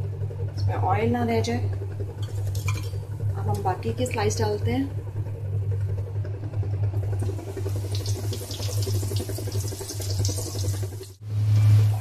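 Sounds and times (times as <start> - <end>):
steady low hum: 0.0 - 12.0
oil sizzling and crackling: 2.2 - 3.0, 7.0 - 12.0.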